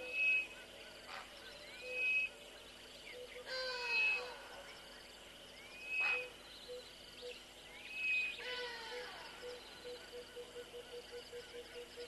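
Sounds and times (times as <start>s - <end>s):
loud whistled bird calls: 0.0s - 0.6s, 1.8s - 2.4s, 5.6s - 6.8s.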